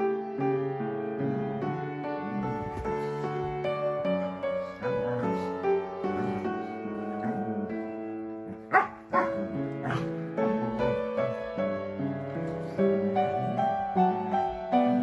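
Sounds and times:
gentle piano music: 0.0 - 15.0
dog barking: 8.5 - 10.1.

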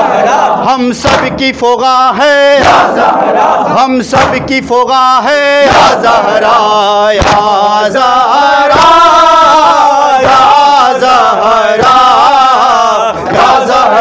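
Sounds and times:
men chanting: 0.0 - 14.0
hands slapping chests: 1.0 - 1.4, 2.6 - 3.1, 4.1 - 4.6, 7.2 - 7.6.

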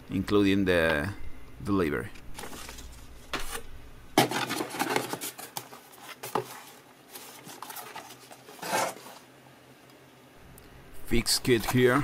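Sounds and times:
cardboard scraping: 4.2 - 9.3.

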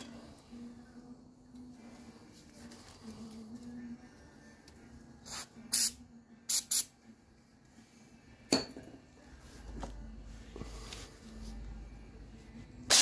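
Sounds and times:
aerosol spray can bursts: 5.2 - 6.9.

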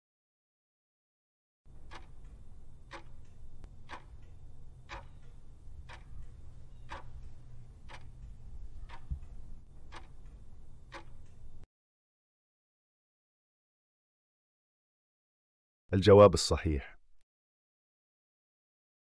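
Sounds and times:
low steady hum: 1.7 - 11.6
clock ticking: 1.7 - 11.7.

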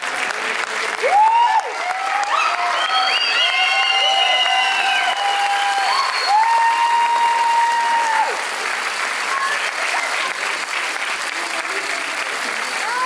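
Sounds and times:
audience applauding: 0.0 - 13.0
high whoops of cheering: 1.0 - 8.6.

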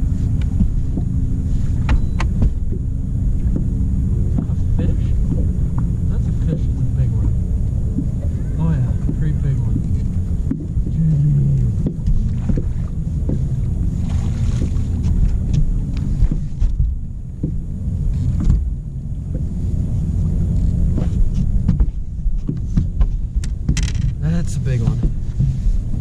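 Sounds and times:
boat low rumble: 0.0 - 26.0
knocks and clicks: 1.8 - 4.6, 6.5 - 13.7, 20.9 - 24.2.

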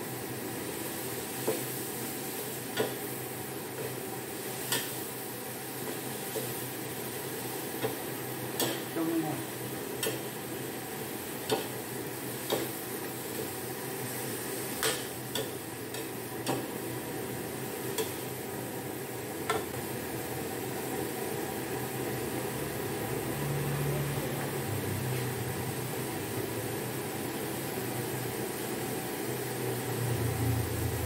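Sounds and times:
food sizzling: 0.0 - 31.0.

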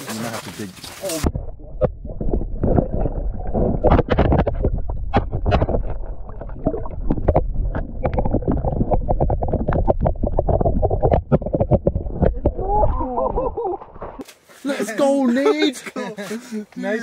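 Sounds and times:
knocks and clicks underwater: 1.2 - 13.0
muffled underwater rumble: 1.3 - 14.2.

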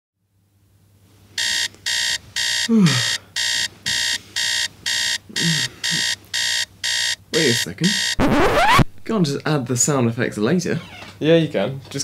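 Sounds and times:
alarm clock beeping: 1.4 - 8.2
person groaning: 2.7 - 3.1, 5.4 - 5.8.

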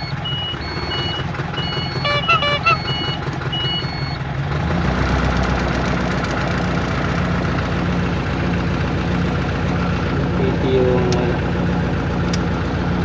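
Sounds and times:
reversing beep: 0.0 - 4.2
vehicle engine idling: 0.0 - 13.0.

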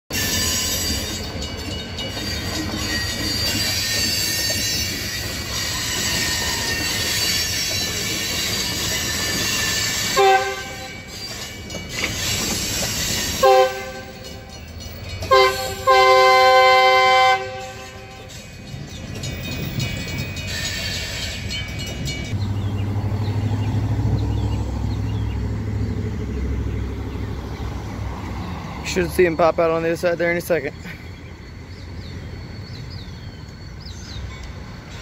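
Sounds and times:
train wheels squealing: 0.1 - 25.4, 26.3 - 35.0
freight train rolling past: 0.1 - 35.0
locomotive horn blasts: 10.0 - 11.1, 13.4 - 14.6, 15.3 - 18.4.

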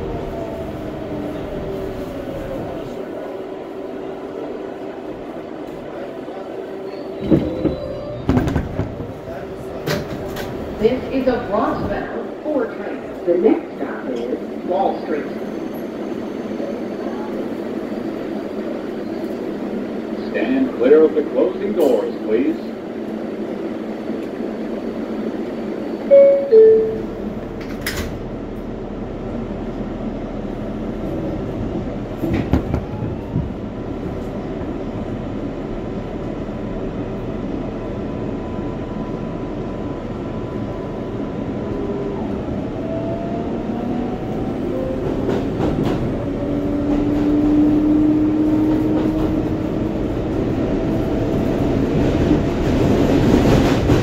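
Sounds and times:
wheels rumbling on rails: 7.0 - 14.6, 15.7 - 54.0
two-note door chime: 26.1 - 27.2.

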